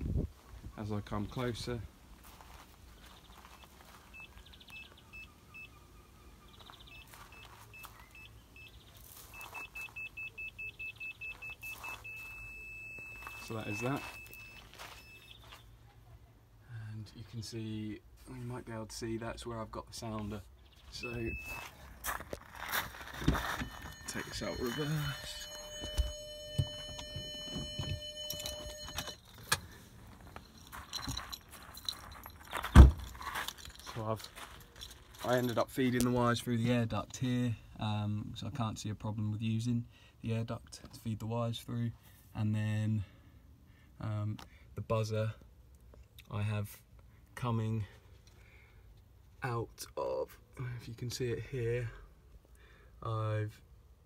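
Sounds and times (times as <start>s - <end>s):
parking sensor continuous tone: 3.0s - 16.1s, 16.8s - 44.5s
parking sensor beeping: 3.6s - 15.5s, 21.0s - 21.8s, 23.1s - 29.2s
clicks and jingling: 22.4s - 36.2s.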